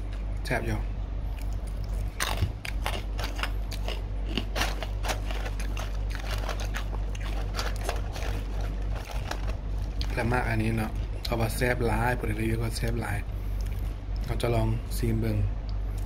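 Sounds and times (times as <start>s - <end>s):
steady low hum: 0.0s - 16.0s
crunchy chewing of chips: 1.3s - 11.6s.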